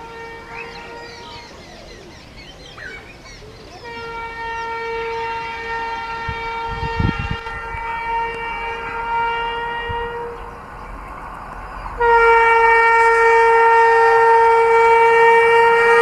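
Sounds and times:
train horn blast: 0.0s - 1.6s, 3.7s - 10.6s, 12.0s - 16.0s
birds chirping: 0.2s - 6.6s.

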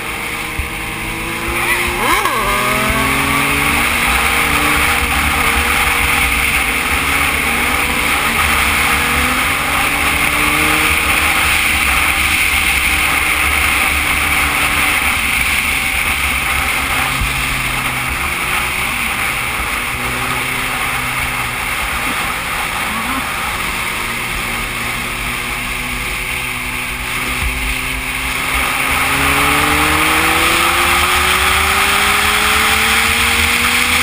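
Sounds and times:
motorcycle engine running: 0.0s - 34.0s.

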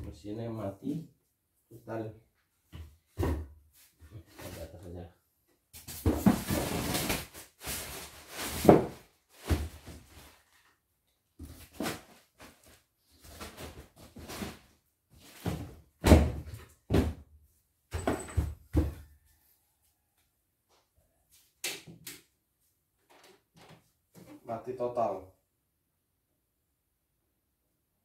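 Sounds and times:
objects thumping when set down: 17.9s - 19.1s.

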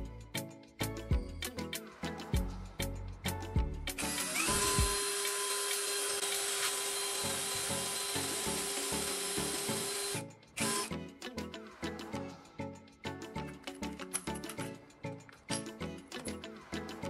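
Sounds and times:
cordless drill boring into wood: 4.0s - 10.9s.

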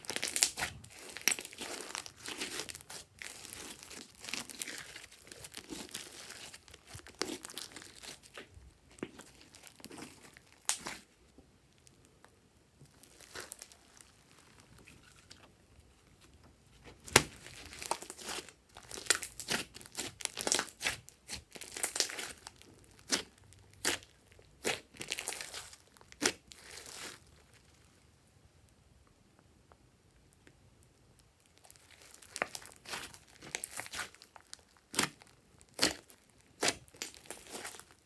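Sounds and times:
sticky slime clicks and crackles: 31.5s - 38.0s.

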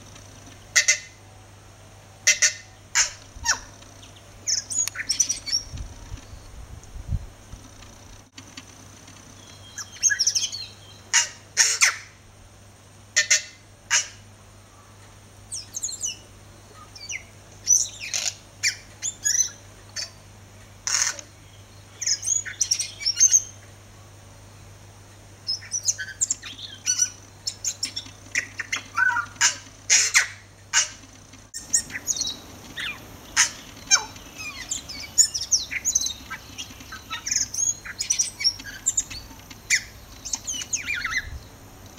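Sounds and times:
bird singing whistled notes: 9.4s - 11.0s, 15.5s - 16.2s, 16.9s - 19.6s, 22.0s - 23.6s, 25.5s - 29.3s, 31.6s - 41.5s.

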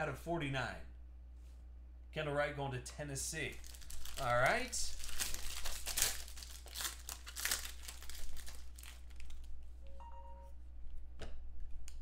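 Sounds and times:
foil wrapper crinkling: 3.5s - 9.6s.

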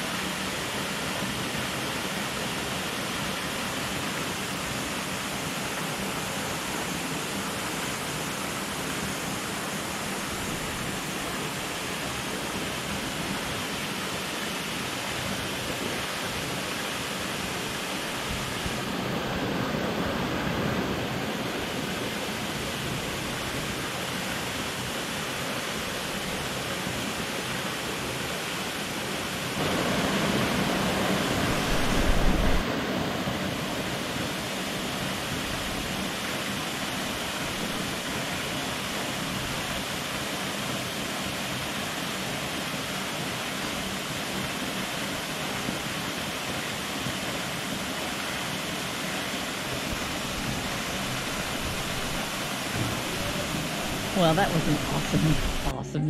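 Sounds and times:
waterfall rushing: 0.0s - 55.9s
low thump: 52.7s - 54.1s.

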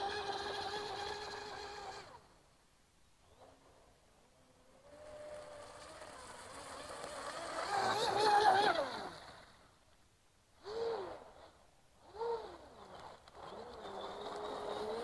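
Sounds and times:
rc boat electric motor whining: 0.0s - 2.3s, 4.5s - 9.6s, 10.6s - 15.0s.

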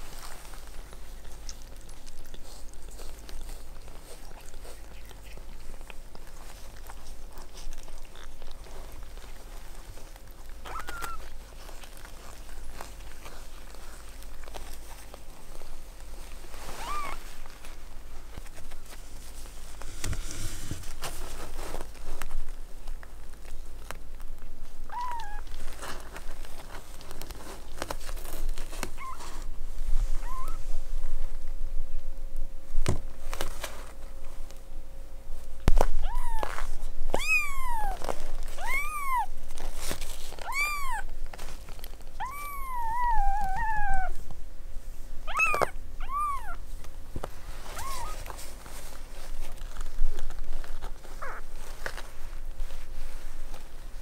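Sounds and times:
kittens mewing: 10.6s - 11.4s, 16.8s - 17.3s, 24.8s - 25.5s, 30.2s - 30.6s, 36.0s - 39.3s, 40.4s - 41.1s, 42.2s - 44.2s, 45.2s - 46.6s, 47.7s - 48.3s, 51.2s - 51.5s.

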